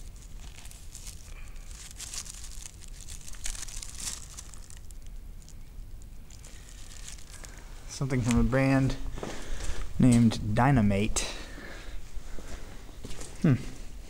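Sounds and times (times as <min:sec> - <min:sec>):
packaging crinkling: 0:00.0 - 0:09.9.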